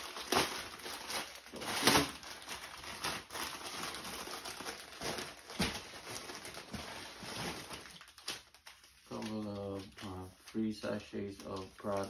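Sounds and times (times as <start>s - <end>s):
plastic bag rustling and crinkling: 0.0s - 12.0s.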